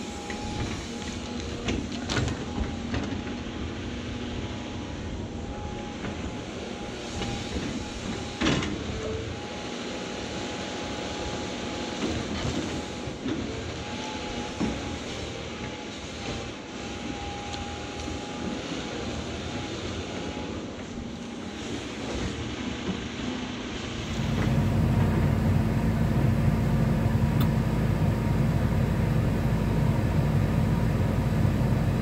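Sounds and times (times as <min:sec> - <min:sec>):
excavator diesel engine: 0:23.8 - 0:32.0.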